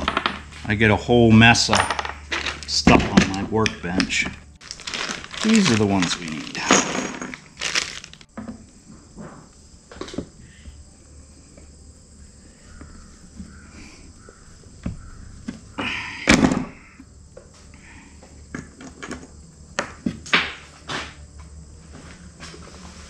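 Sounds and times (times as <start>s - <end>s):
handling noise: 0.0s - 8.4s.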